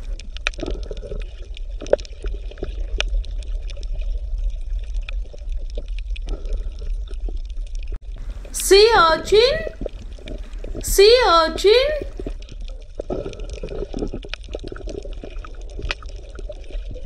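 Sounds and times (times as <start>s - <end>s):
water bubbling and gurgling: 0.0s - 8.5s, 12.0s - 17.0s.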